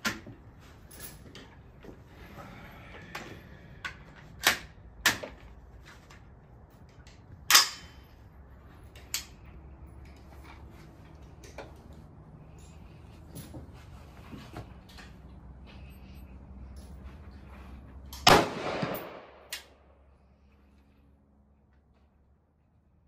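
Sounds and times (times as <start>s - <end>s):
gunshot-like bangs: 18.3s - 19.5s
metallic clicks of rifle handling: 19.0s - 19.8s.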